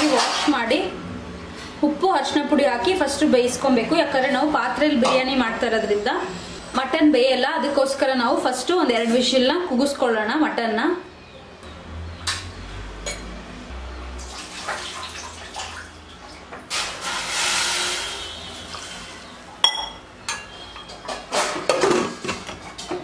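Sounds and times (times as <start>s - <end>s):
water pouring into a pot: 14.2s - 15.9s, 16.7s - 19.3s.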